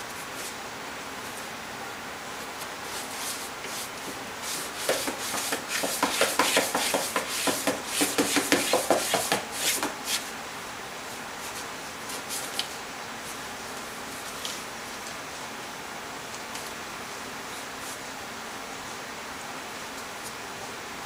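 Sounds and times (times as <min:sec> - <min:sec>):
cat claws scratching cardboard: 0:02.9 - 0:10.3.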